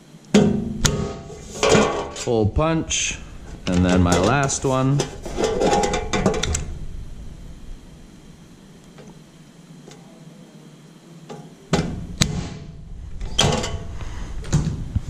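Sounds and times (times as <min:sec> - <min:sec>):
punch snapping through sheet metal: 0:00.4 - 0:01.3, 0:11.8 - 0:12.8
metal clattering: 0:03.5 - 0:06.8.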